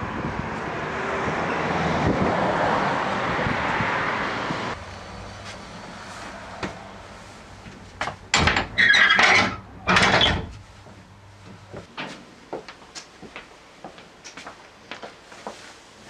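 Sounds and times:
door clattering: 8.3 - 10.6
squeaky door scrape: 8.5 - 10.6.

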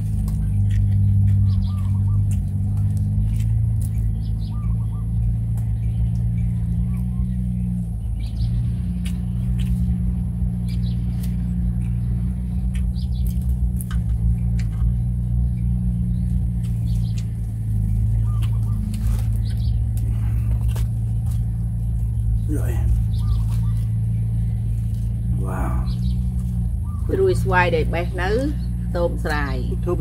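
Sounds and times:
chewing: 0.0 - 27.1
tearing and wrapping leafy greens: 0.0 - 27.5
low mechanical hum: 0.0 - 30.0.

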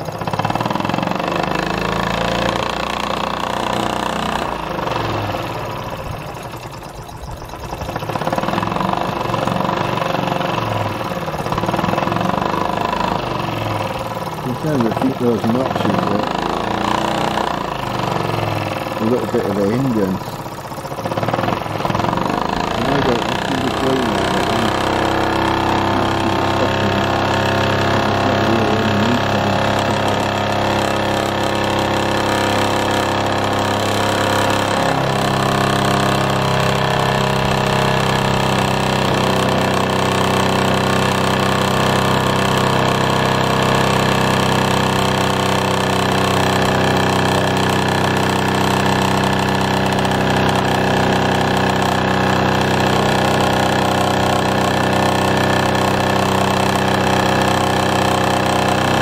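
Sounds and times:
toy steam engine chuffing: 0.0 - 59.0.

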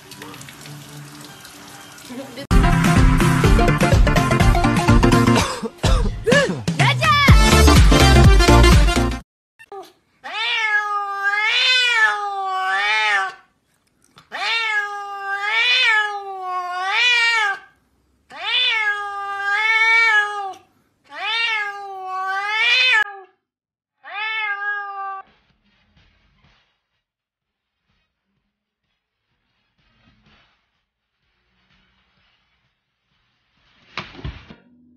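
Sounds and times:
music: 2.5 - 9.2
cat meowing loudly: 10.2 - 13.5, 14.3 - 23.4, 24.0 - 25.3.

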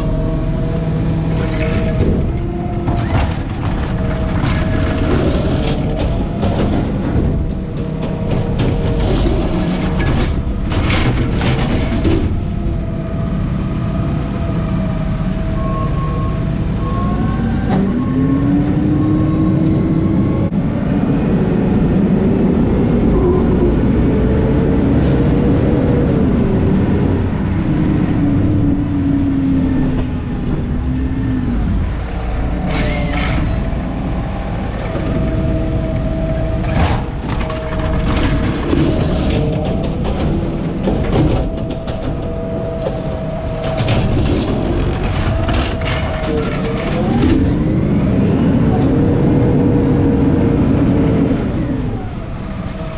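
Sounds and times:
truck engine revving: 0.0 - 52.9
hydraulic arm whining: 25.0 - 52.9.

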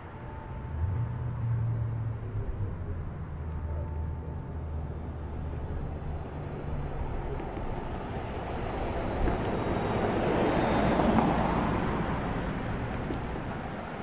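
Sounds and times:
low rumble: 0.0 - 9.6.

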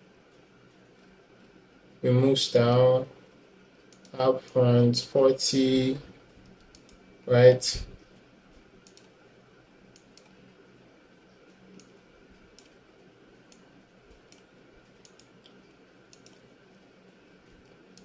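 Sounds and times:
low room hum: 0.0 - 18.0
mouse and keyboard clicks: 8.8 - 9.1, 11.7 - 12.8, 14.3 - 16.5.

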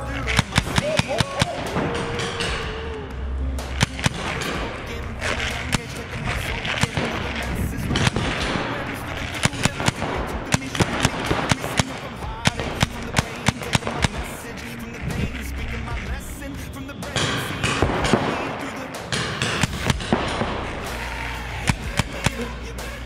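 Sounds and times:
paintball markers popping: 3.6 - 16.2.

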